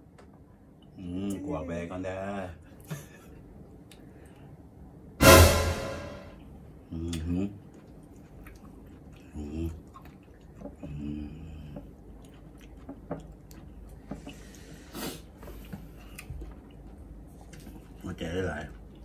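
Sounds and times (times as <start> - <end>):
brief hum: 5.2 - 6.4
wet chewing and squishing: 7.1 - 19.0.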